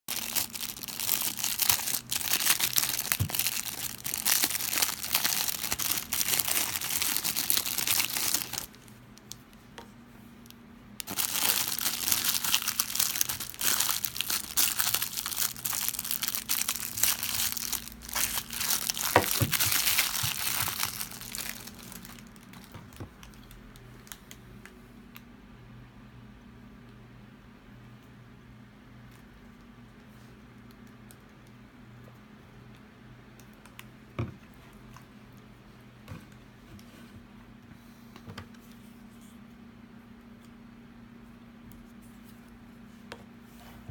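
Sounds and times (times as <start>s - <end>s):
plastic bag crinkling: 0.1s - 9.4s, 11.0s - 24.2s.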